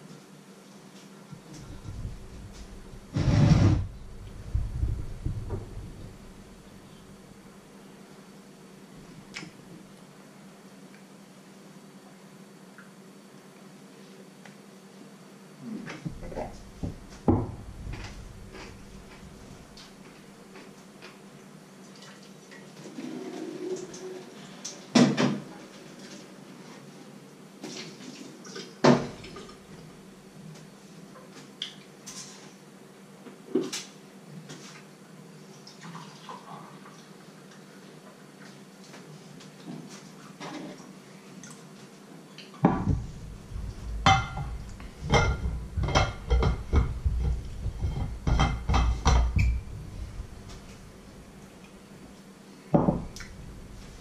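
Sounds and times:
pan and crockery knocks: 0:42.7 - 0:50.6.

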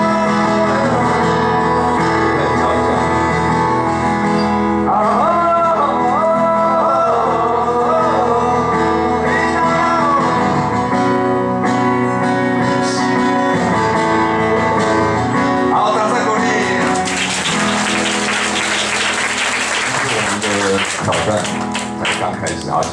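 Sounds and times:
person singing: 0:00.0 - 0:03.2, 0:04.8 - 0:10.8, 0:11.9 - 0:17.0
acoustic guitar: 0:00.0 - 0:22.9
audience applause: 0:16.8 - 0:22.9.

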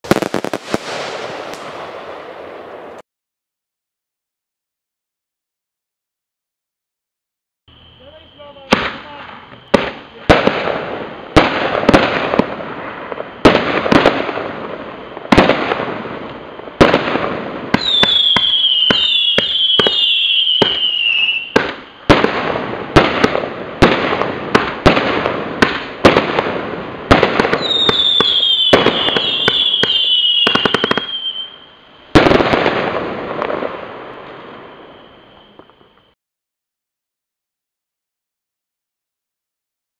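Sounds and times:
fireworks bangs: 0:00.0 - 0:03.0, 0:07.8 - 0:36.2
fireworks crackling: 0:00.0 - 0:03.0, 0:07.8 - 0:36.2
falling whistles: 0:07.7 - 0:10.2, 0:17.8 - 0:22.1, 0:27.6 - 0:32.1, 0:34.4 - 0:36.2.

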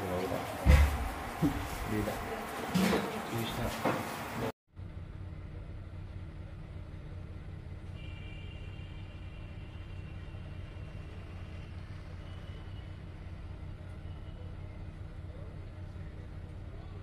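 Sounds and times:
car engine idling: 0:04.7 - 0:08.0, 0:09.9 - 0:17.0.

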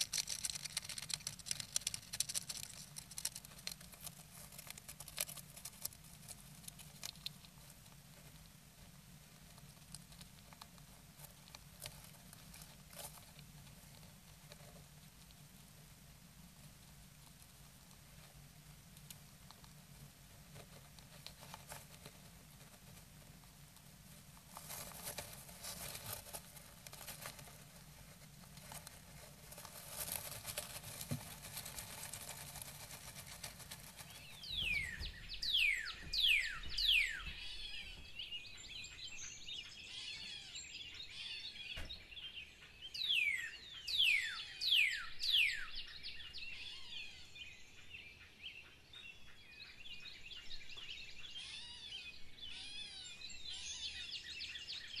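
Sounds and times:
bird scratching in nest material: 0:00.0 - 0:07.4, 0:24.5 - 0:35.1
bird twittering: 0:34.2 - 0:47.3.

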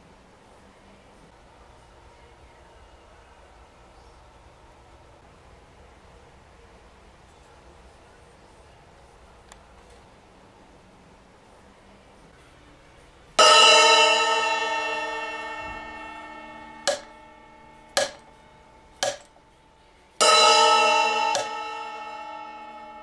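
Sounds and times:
damped cymbal clank: 0:13.4 - 0:19.4, 0:20.2 - 0:23.0
cymbal ringing: 0:13.4 - 0:23.0.

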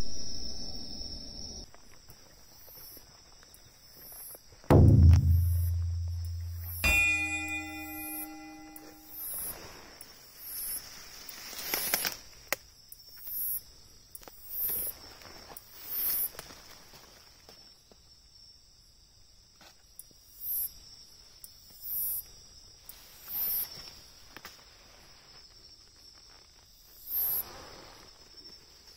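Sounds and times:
insects trilling: 0:10.4 - 0:28.9
clicks of movement in vegetation: 0:11.3 - 0:12.6.

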